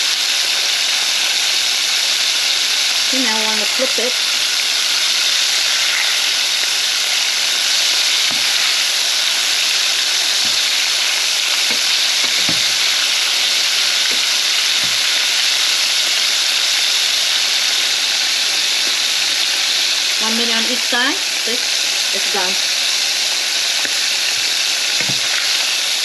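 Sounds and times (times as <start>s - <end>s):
shrimp sizzling in hot oil: 0.0s - 26.0s.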